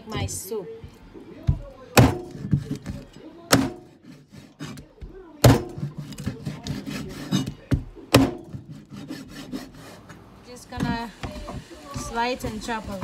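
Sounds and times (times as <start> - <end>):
cleaver chopping on wooden board: 1.5 - 3.9, 5.4 - 8.8
blade scraping cutting board: 4.0 - 4.8, 5.8 - 7.6, 8.4 - 10.2.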